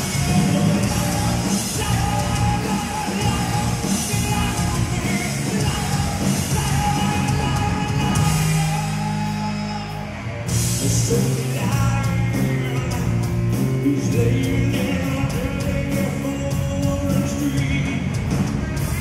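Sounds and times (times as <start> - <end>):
bass guitar: 0.0 - 19.0
drums: 0.0 - 19.0
electric guitar: 0.0 - 19.0
singer singing into microphone: 0.0 - 19.0.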